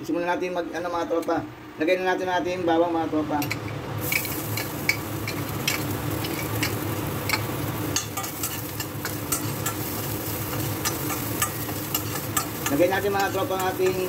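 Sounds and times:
garlic sizzling in hot oil: 0:04.0 - 0:14.0
metal spoon scraping a pan: 0:04.0 - 0:14.0.

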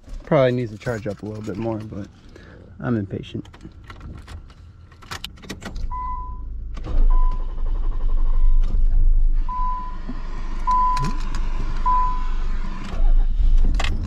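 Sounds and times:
dashboard warning chime beeping: 0:05.9 - 0:06.5, 0:07.1 - 0:07.5, 0:09.5 - 0:10.0, 0:10.6 - 0:11.2, 0:11.8 - 0:12.4
starter cranking engine: 0:06.8 - 0:14.0.

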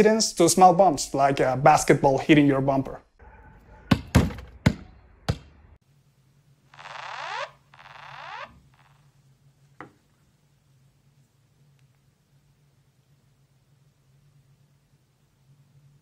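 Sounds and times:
basketball bouncing: 0:03.9 - 0:05.6.

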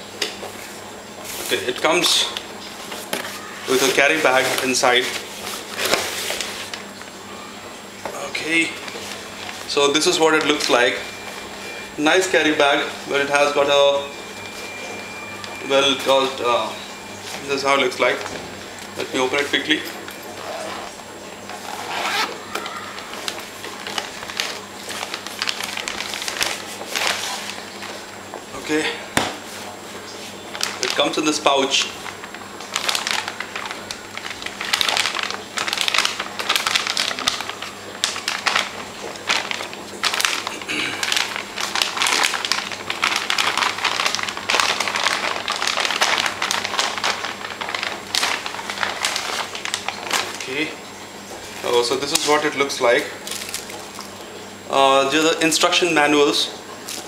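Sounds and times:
fabric bag rustling: 0:21.5 - 0:27.7, 0:32.2 - 0:50.6
zipper being pulled open: 0:21.6 - 0:22.4.

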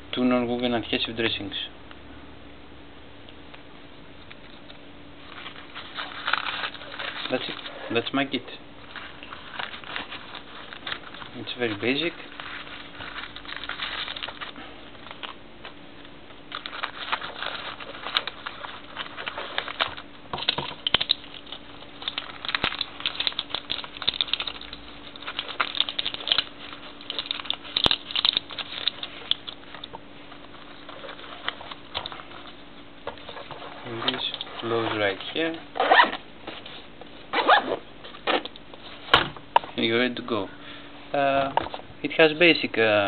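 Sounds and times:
faint steady hum: 0:00.0 - 0:43.0
packets rustling and crinkling: 0:05.2 - 0:39.2.

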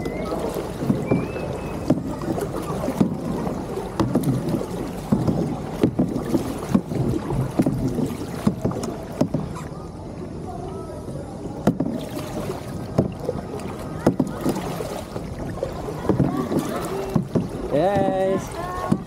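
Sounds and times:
paddle blades splashing water: 0:00.0 - 0:19.0.

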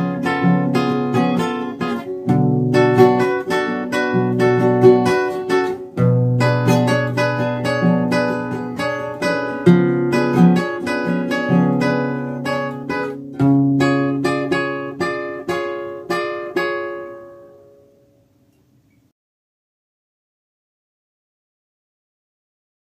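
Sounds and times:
flamenco guitar playing: 0:00.0 - 0:18.2.

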